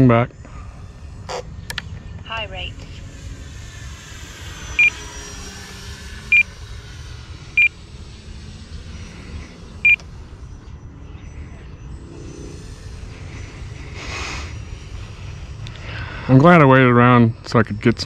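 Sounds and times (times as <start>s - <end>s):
electric motor whine: 0.0s - 18.0s
remote control transmitter beeps: 4.8s - 5.0s, 9.8s - 10.0s.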